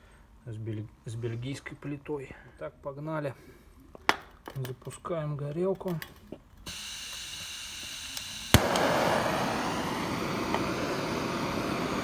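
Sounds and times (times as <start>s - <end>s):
gas hissing: 6.6s - 12.0s
rushing torch flame: 6.7s - 12.0s
torch igniting pop: 8.5s - 12.0s.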